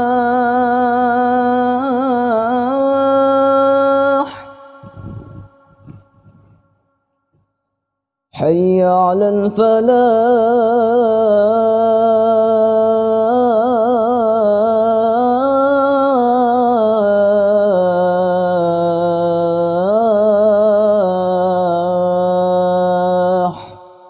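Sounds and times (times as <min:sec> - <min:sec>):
boy chanting call to prayer: 0:00.0 - 0:05.9, 0:08.4 - 0:24.0.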